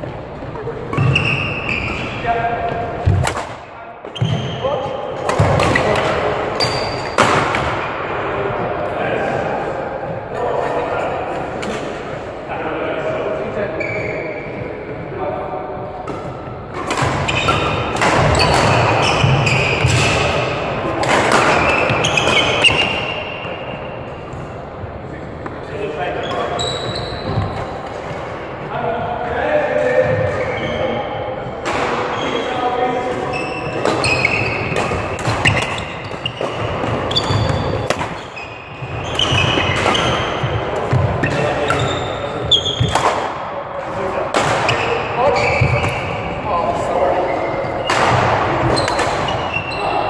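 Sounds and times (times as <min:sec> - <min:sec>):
shoes squeaking on court: 0:00.0 - 0:03.2, 0:04.1 - 0:04.7, 0:06.6 - 0:07.4, 0:13.8 - 0:15.0, 0:16.1 - 0:24.4, 0:26.2 - 0:27.9, 0:30.0 - 0:31.1, 0:32.1 - 0:43.1, 0:44.6 - 0:50.0.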